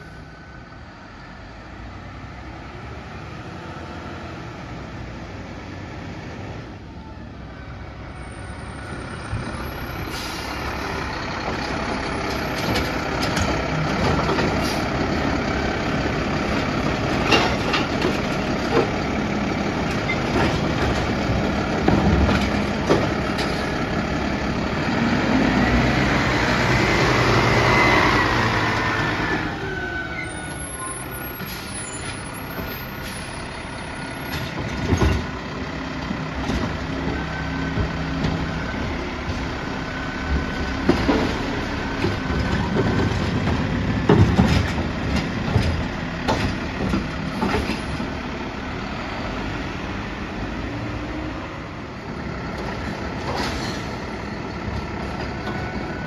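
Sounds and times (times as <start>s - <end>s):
air brakes hissing: 9.7s - 11.0s, 30.4s - 33.5s
garbage truck engine running: 30.6s - 56.0s
knocks and rattles from truck body: 34.3s - 35.3s, 40.4s - 48.1s.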